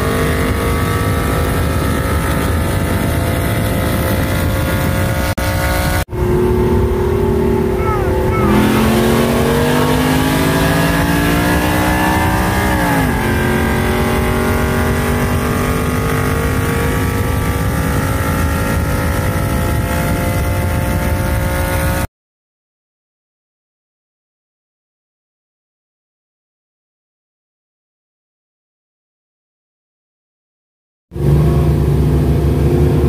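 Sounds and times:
pickup engines at full throttle: 0:00.0 - 0:22.1, 0:31.2 - 0:33.0.

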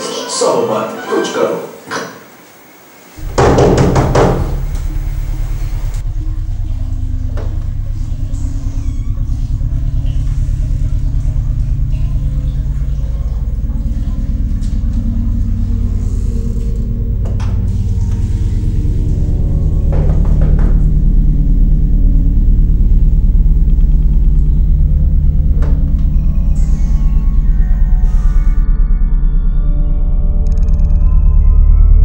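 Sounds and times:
higher held tones: 0:03.2 - 0:28.6
loud orchestral hit: 0:03.2 - 0:28.6
low rumbling drone: 0:03.2 - 0:32.0.

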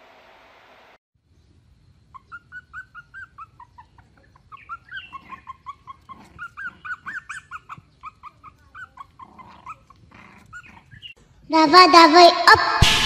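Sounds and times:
puppies whimpering and yipping: 0:02.1 - 0:11.2.

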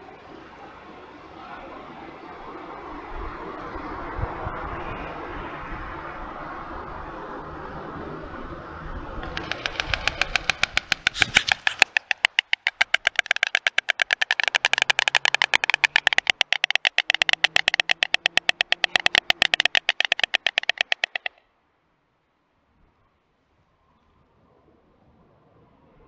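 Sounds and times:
stork bill clattering: 0:09.2 - 0:21.4.

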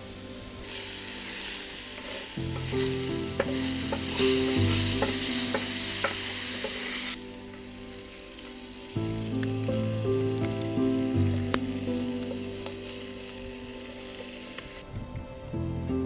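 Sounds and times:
meat sizzling in frying pan: 0:00.5 - 0:14.8
spatula scraping and knocking pan: 0:02.0 - 0:07.0.

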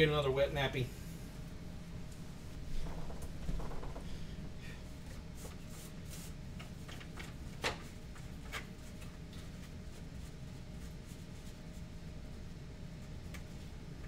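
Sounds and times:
low hum: 0:00.0 - 0:06.2.

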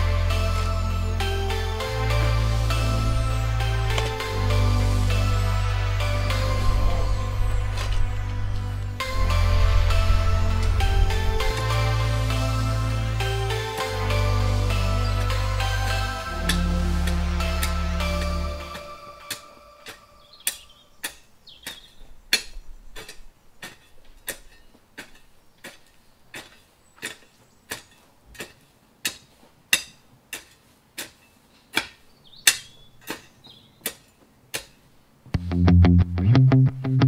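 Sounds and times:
loud background music: 0:00.0 - 0:20.0
spade chopping into soil: 0:18.8 - 0:34.8
faint bird chirps: 0:20.0 - 0:23.0.

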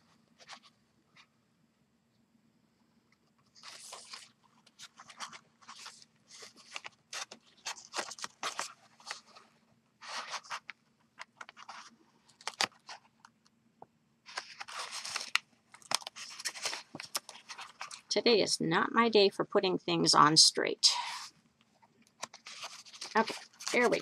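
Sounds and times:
paper rustling and crinkling: 0:00.4 - 0:01.3, 0:03.4 - 0:13.2, 0:14.3 - 0:18.1, 0:22.1 - 0:24.0.

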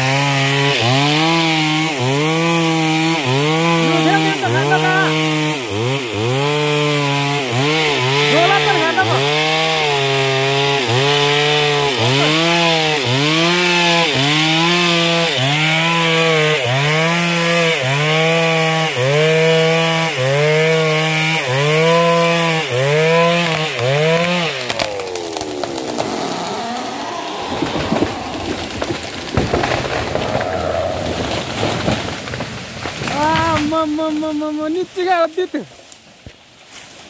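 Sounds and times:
tree cracking and crashing down: 0:00.0 - 0:19.8, 0:20.6 - 0:37.0
chainsaw cutting tree: 0:00.0 - 0:37.0.

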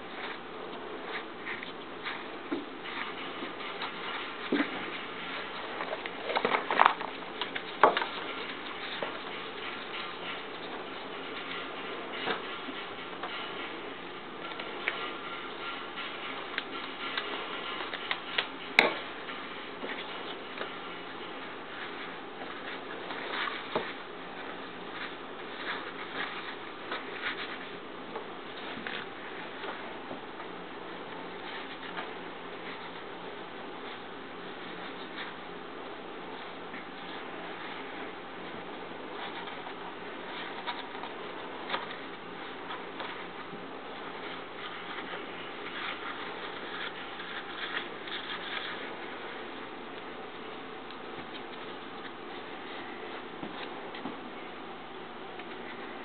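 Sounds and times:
cloth rustling: 0:00.0 - 0:54.5
fabric rustling and rubbing: 0:36.2 - 0:54.5.

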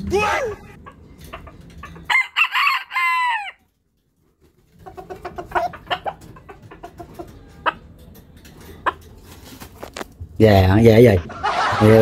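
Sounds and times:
rooster clucking: 0:00.6 - 0:03.6, 0:04.7 - 0:07.9
rooster crowing: 0:02.1 - 0:03.6.

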